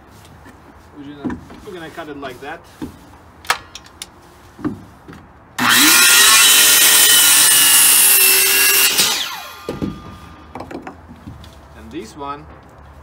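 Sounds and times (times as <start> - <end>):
circular saw cutting wood: 5.6 - 10.4.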